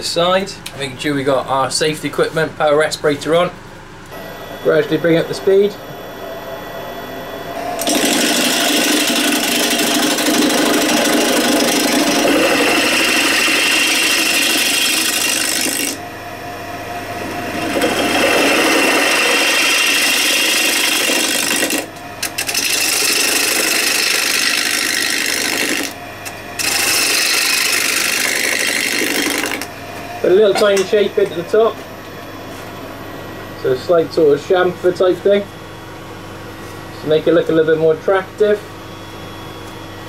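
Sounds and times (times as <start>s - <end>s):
lathe tool cutting wood: 7.8s - 16.0s, 17.1s - 26.0s, 26.6s - 31.3s.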